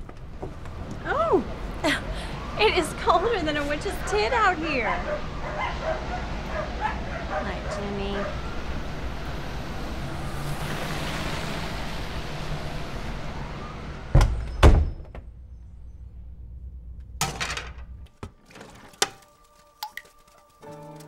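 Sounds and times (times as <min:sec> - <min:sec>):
door shutting with heavy thuds: 0:14.1 - 0:15.4.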